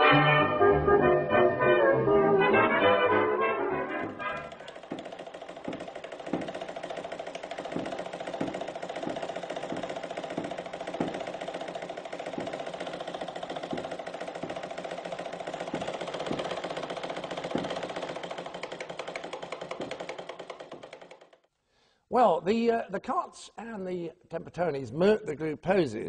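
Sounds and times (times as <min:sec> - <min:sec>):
machine whirring buzz: 0:04.0 - 0:21.4
soft knocks: 0:04.8 - 0:06.8, 0:07.6 - 0:11.4.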